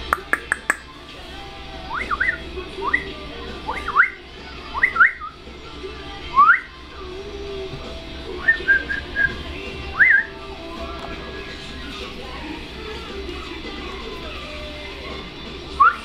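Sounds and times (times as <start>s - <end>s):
person whistling: 8.4s - 9.4s.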